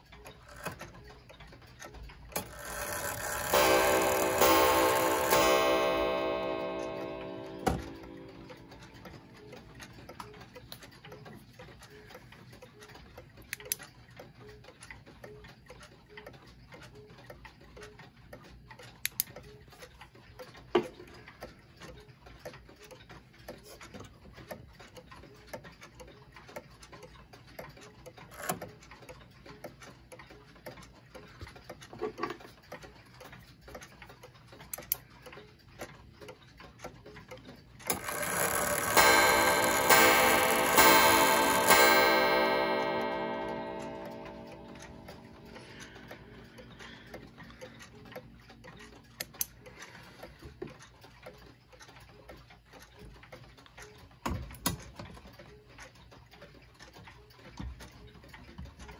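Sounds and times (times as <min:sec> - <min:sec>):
wall clock ticking: 0:00.0 - 0:58.9.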